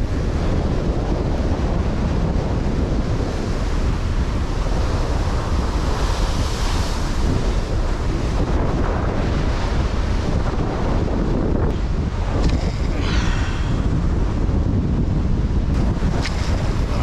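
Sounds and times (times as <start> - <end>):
wave crashing and spraying: 0.0 - 17.0
wind buffeting microphone: 0.0 - 17.0
surf breaking against rocks: 15.7 - 17.0.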